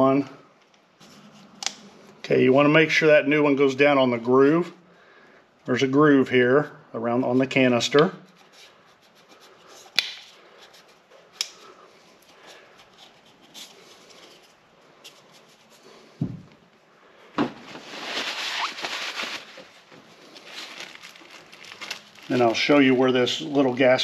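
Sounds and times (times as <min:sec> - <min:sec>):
paper towel rustling: 0:17.5 - 0:24.0.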